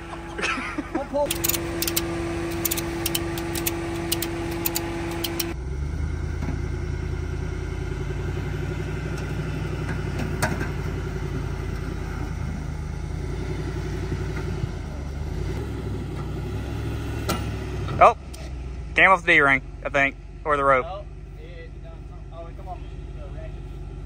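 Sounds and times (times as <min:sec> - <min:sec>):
truck engine running low: 0:00.0 - 0:24.0
sharp click: 0:01.2 - 0:05.6
ratchet strap clicking: 0:01.3 - 0:05.6.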